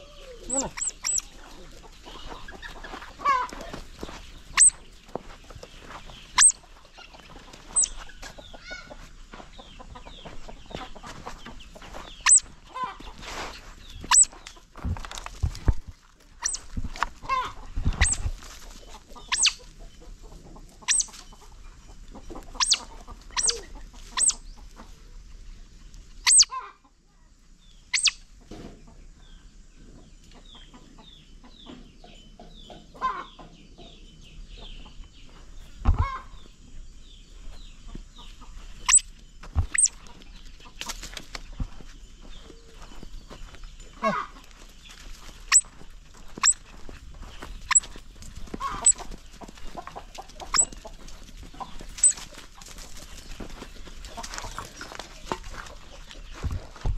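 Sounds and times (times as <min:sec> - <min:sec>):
otter pup high-pitched squeaks: 0:00.0 - 0:01.3, 0:04.5 - 0:04.8, 0:06.3 - 0:07.1, 0:07.7 - 0:09.0, 0:12.2 - 0:13.0, 0:14.0 - 0:14.5, 0:16.4 - 0:18.4, 0:19.2 - 0:19.7, 0:20.8 - 0:21.3, 0:22.4 - 0:24.4, 0:26.2 - 0:26.6, 0:27.9 - 0:28.2, 0:38.7 - 0:40.1, 0:45.4 - 0:46.7, 0:47.6 - 0:48.0, 0:48.6 - 0:49.1, 0:49.8 - 0:50.9, 0:51.9 - 0:52.4
chickens clucking: 0:00.0 - 0:56.9.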